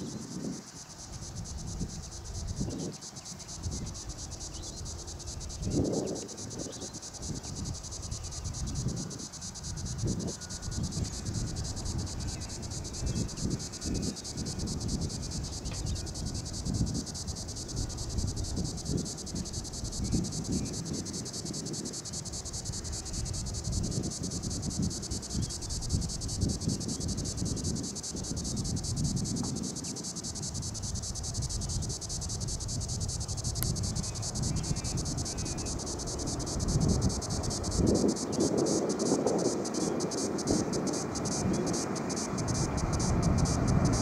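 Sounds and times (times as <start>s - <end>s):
insects trilling: 0.0s - 44.0s
wind buffeting microphone: 0.0s - 44.0s.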